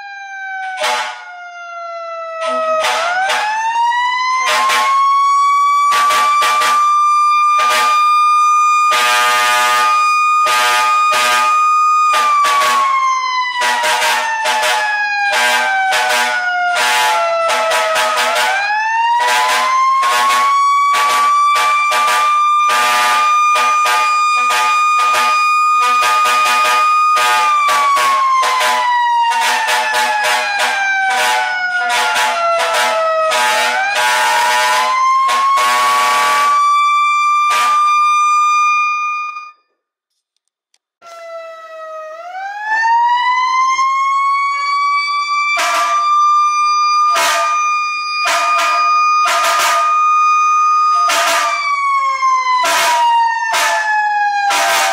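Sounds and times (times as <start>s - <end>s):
siren wailing: 0.0s - 39.7s, 41.0s - 54.9s
horn short blasts: 0.8s - 1.2s, 2.4s - 3.5s, 21.0s - 34.9s, 47.1s - 47.6s.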